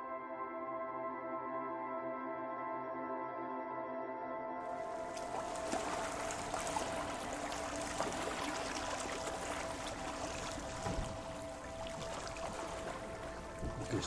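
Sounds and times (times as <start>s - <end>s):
faint steady tone: 4.7s - 14.0s
water rushing along boat hull: 4.7s - 14.0s.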